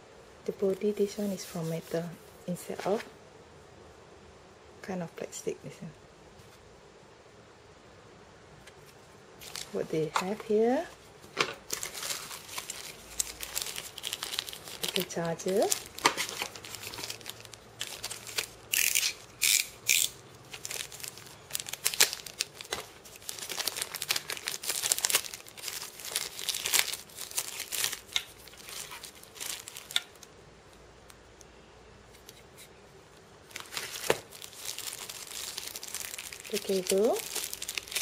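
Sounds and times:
plastic bag crinkling: 0:09.4 - 0:30.3, 0:33.4 - 0:38.0.

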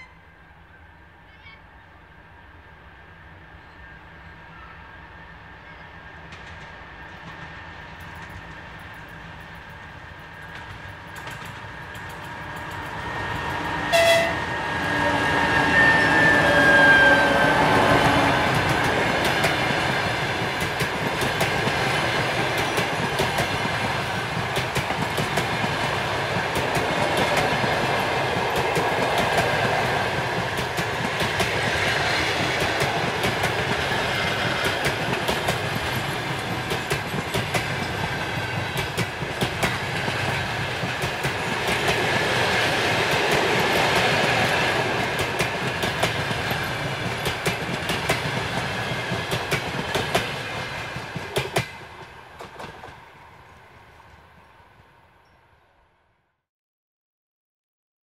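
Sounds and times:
locomotive horn: 0:00.0 - 0:00.5, 0:13.6 - 0:18.6
train wheels rumbling on rail: 0:05.1 - 0:54.6
wheels clickety-clack on rail joints: 0:06.2 - 0:14.3, 0:15.6 - 0:53.4.

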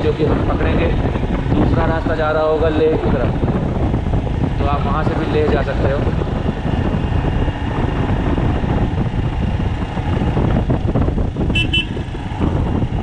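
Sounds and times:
motorcycle engine running: 0:00.0 - 0:13.0
wind noise: 0:00.0 - 0:13.0
horn beeps: 0:11.5 - 0:12.0.

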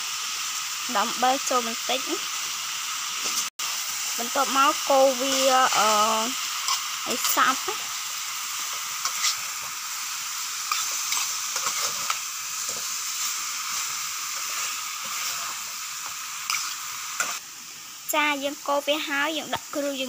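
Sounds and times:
chicken sizzling in a metal pan: 0:00.0 - 0:20.0
metal spoon scraping a pan: 0:05.3 - 0:07.9, 0:08.6 - 0:09.8, 0:10.6 - 0:17.4.

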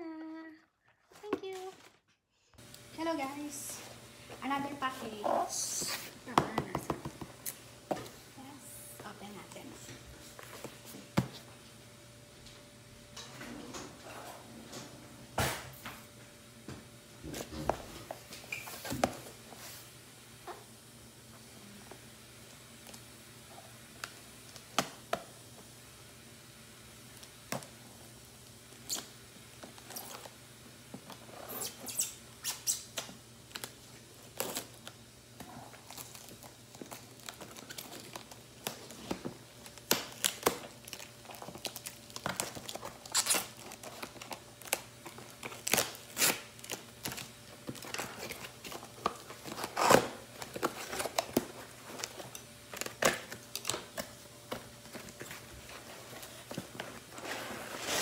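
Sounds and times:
cardboard tearing and rustling: 0:35.7 - 0:58.0.

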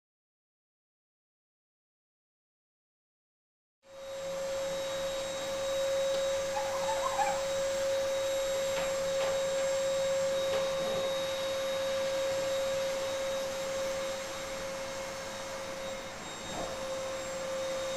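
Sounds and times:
faint chirps: 0:06.3 - 0:07.6.

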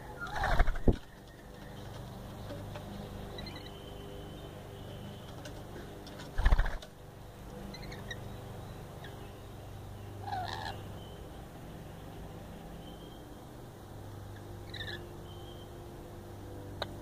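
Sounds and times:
steady low hum: 0:00.0 - 0:17.0
bird wings flapping: 0:00.4 - 0:01.2, 0:06.1 - 0:06.9
faint bird chirps: 0:03.0 - 0:06.7, 0:07.6 - 0:11.3, 0:14.4 - 0:15.8.

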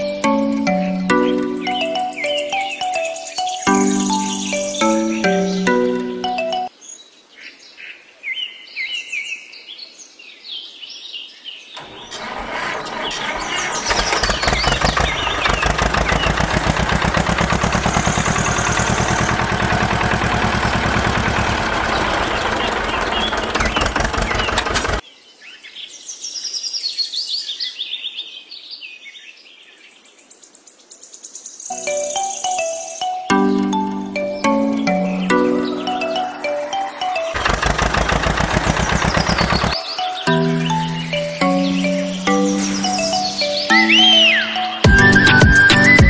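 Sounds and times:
birds chirping: 0:00.0 - 0:06.9, 0:11.8 - 0:25.0, 0:31.6 - 0:46.0
tractor engine chugging: 0:11.8 - 0:25.0, 0:33.8 - 0:39.8.

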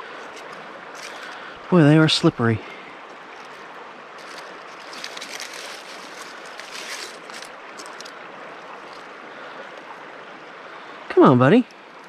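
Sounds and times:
dry leaves rustling: 0:00.0 - 0:01.5, 0:03.3 - 0:09.2
creek water running: 0:00.0 - 0:12.0.

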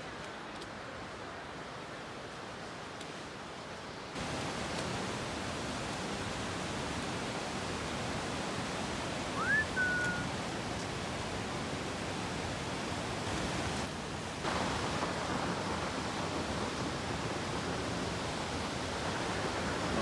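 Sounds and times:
rushing whitewater: 0:00.0 - 0:20.0
rising whistle: 0:09.4 - 0:10.3.

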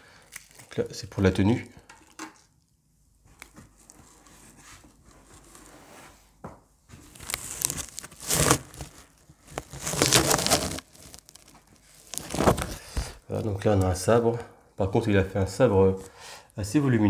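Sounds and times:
packing material rustling and crinkling: 0:06.9 - 0:14.0.

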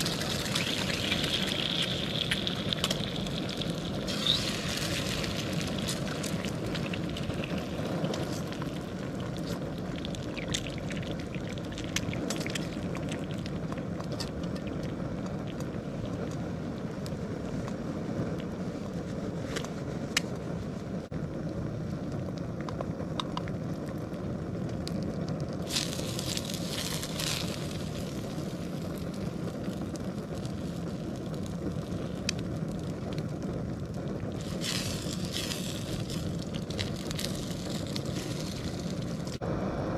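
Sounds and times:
eggs sizzling: 0:00.0 - 0:18.5, 0:25.6 - 0:39.4
stove burner roaring: 0:00.0 - 0:39.9.

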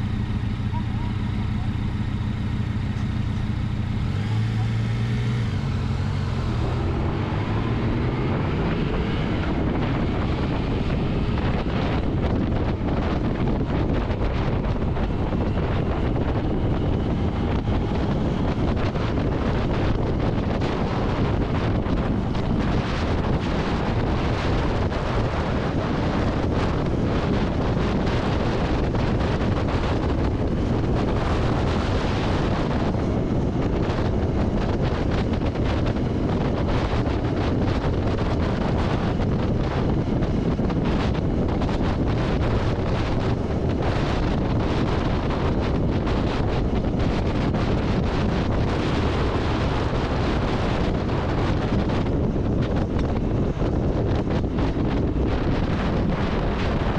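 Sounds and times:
motorcycle engine: 0:00.0 - 0:56.9
road noise: 0:00.0 - 0:56.9
wind rush on microphone: 0:00.0 - 0:56.9.

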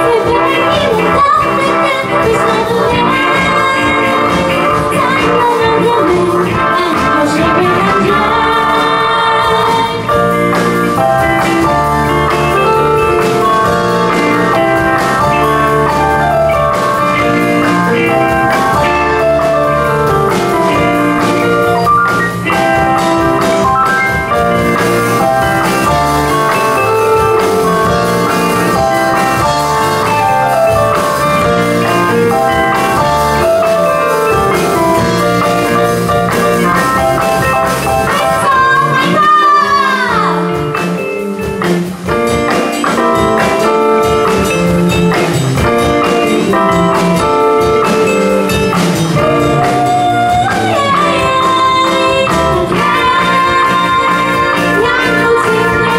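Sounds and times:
woman singing: 0:00.0 - 0:10.2, 0:38.0 - 0:41.1, 0:49.6 - 0:55.9
drum kit: 0:00.0 - 0:55.9
electric bass: 0:00.0 - 0:55.9
electric guitar: 0:00.0 - 0:55.9.

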